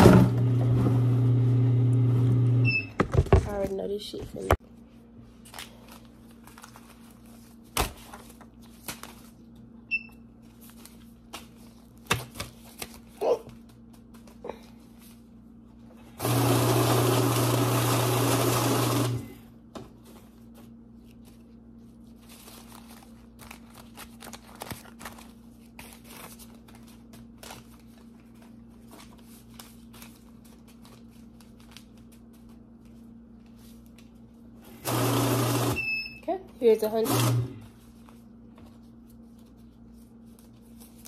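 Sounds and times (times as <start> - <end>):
paper bills rustling: 5.2 - 9.7, 10.3 - 15.4, 20.0 - 34.4, 37.7 - 41.0
banknote counter whirring: 16.2 - 19.4, 34.8 - 36.0.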